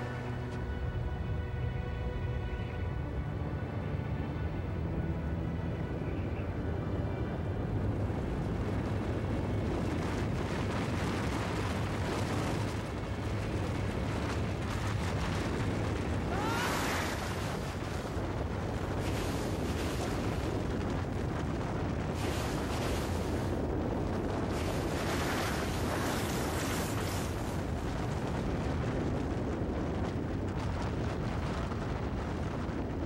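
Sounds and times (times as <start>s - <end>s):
avalanche rumbling: 0.0s - 33.0s.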